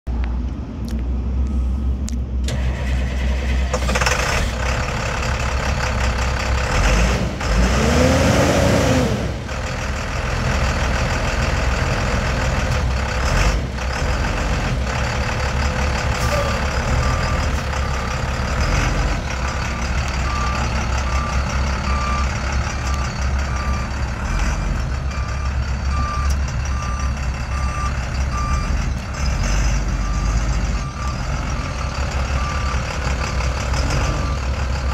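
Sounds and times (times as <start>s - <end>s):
diesel engine revving: 0.9s - 34.9s
reversing alarm beeping: 15.5s - 34.9s.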